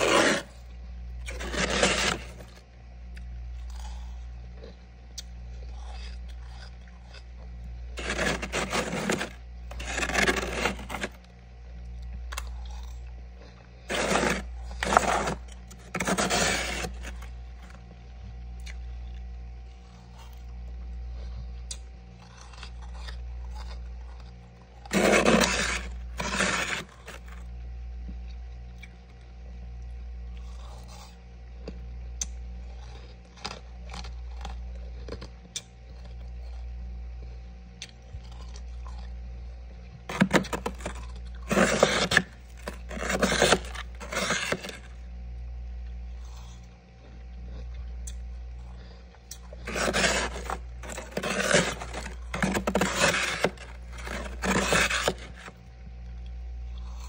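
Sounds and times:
spoon scraping frost: 0.0 - 2.6, 7.9 - 11.3, 13.8 - 17.8, 22.2 - 27.4, 40.1 - 45.0, 48.9 - 55.6
steady low hum: 0.0 - 57.0.

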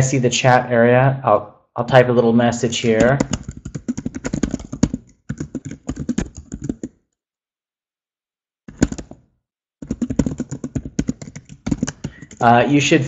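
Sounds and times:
typing on computer keyboard: 2.9 - 7.0, 8.7 - 9.2, 9.8 - 12.5.

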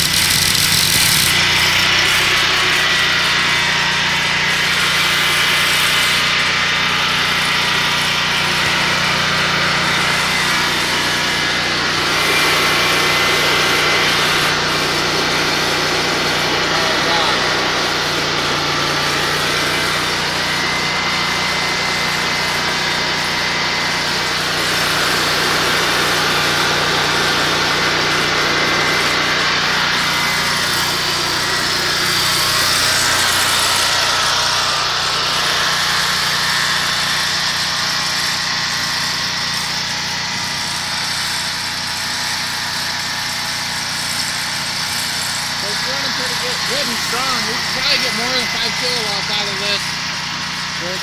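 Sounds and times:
generator engine running: 0.0 - 51.0.

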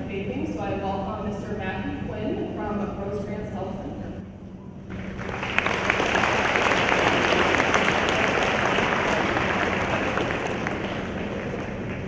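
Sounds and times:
large audience applauding: 4.9 - 12.0.

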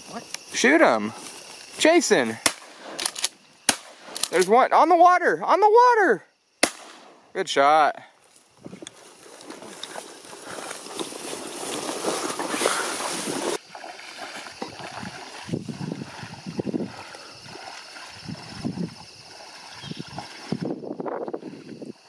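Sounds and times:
wet grass swishing: 8.3 - 21.8
waders sloshing through water: 9.0 - 20.8.

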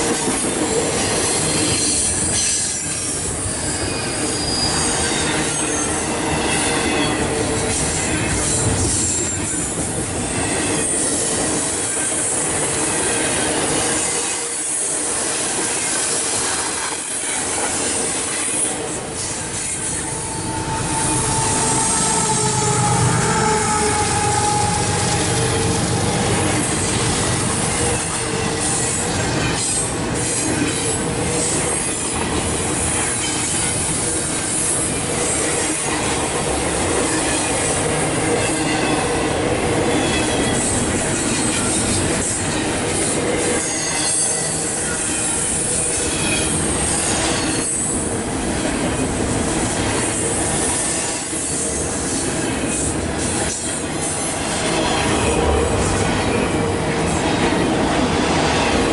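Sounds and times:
steel wheels rumbling on rail: 0.0 - 58.9
wheels squealing: 3.4 - 6.0, 18.4 - 26.1.

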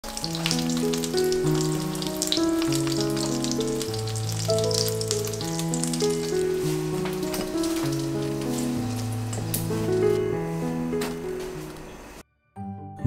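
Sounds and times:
food sizzling in oil: 0.0 - 10.1
background music of held notes: 0.0 - 13.0.

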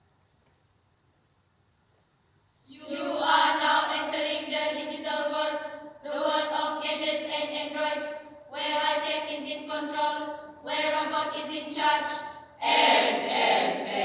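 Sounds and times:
choir singing held notes: 12.6 - 14.0.

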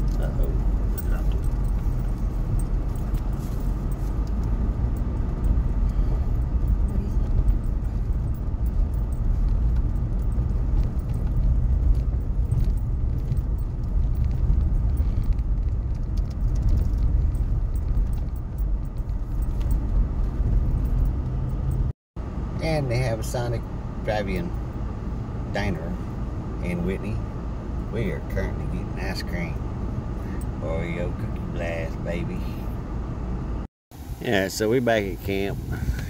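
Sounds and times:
small rattles and clicks: 0.0 - 21.9
tyres rumbling on gravel: 0.0 - 21.9.

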